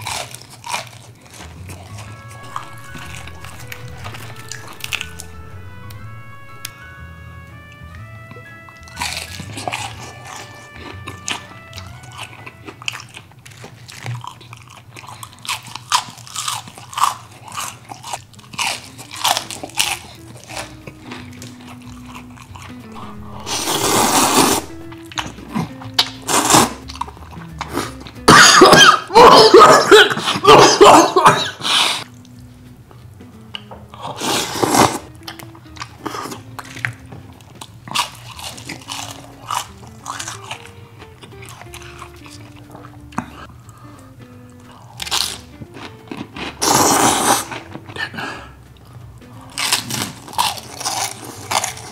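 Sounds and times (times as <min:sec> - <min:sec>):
crunching and chewing: 0:00.0 - 0:05.0, 0:08.8 - 0:23.5, 0:33.5 - 0:51.9
soft background music: 0:00.0 - 0:51.9
slurping noodles: 0:34.0 - 0:35.1, 0:46.5 - 0:48.5.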